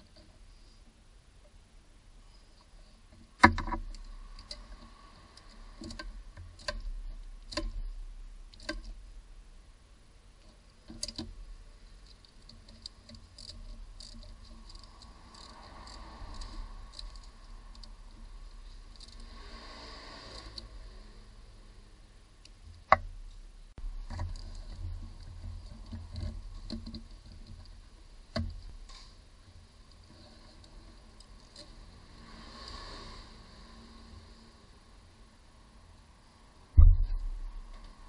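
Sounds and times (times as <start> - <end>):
ratchet wrench clicking: 12.0 - 18.0.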